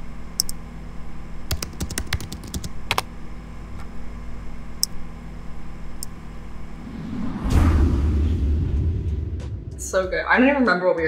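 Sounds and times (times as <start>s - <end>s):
low steady hum: 0.0s - 11.0s
computer keyboard typing: 1.5s - 3.1s.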